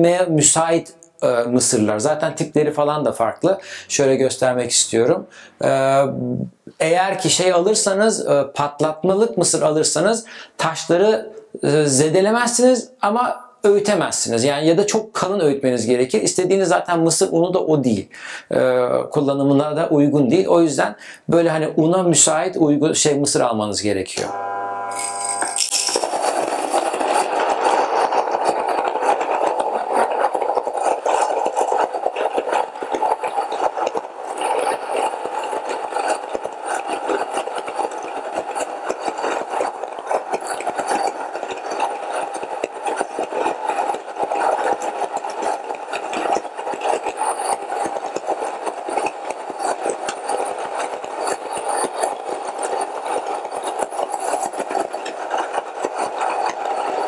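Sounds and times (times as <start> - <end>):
grain mill motor hum: 24.2 - 57.0
kernels crackling between stones: 25.0 - 57.0.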